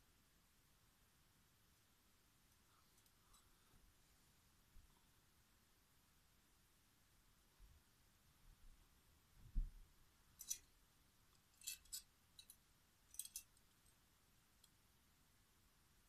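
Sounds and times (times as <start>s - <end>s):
soft low thump: 9.4s - 9.8s
light metallic clicks and clinks: 10.3s - 14.0s.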